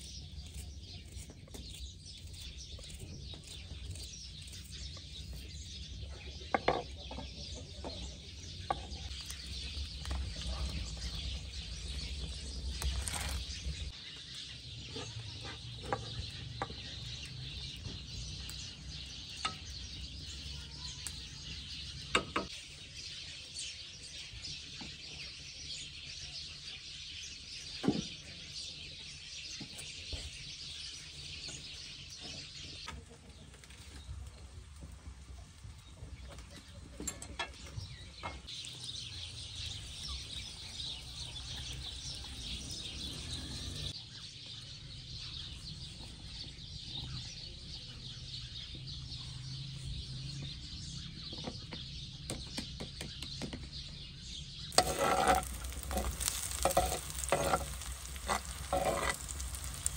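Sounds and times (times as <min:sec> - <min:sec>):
birds chirping: 0:00.0 - 0:59.9
cooking utensils clicking and knocking: 0:54.8 - 0:59.9.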